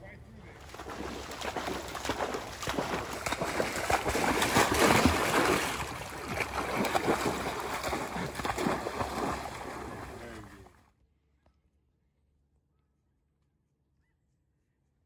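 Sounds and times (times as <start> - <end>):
dog splashing through water: 0.6 - 10.7.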